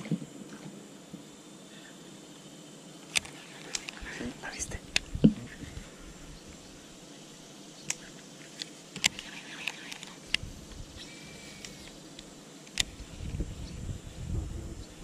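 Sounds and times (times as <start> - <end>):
faint steady hiss: 0.0 - 15.0
thin high whistle: 11.0 - 11.9.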